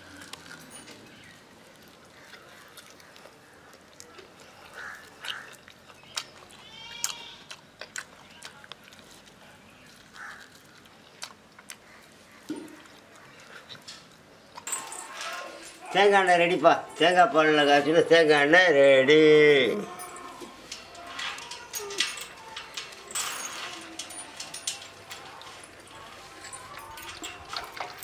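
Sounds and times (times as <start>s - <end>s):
goat bleating: 6.5s - 7.5s.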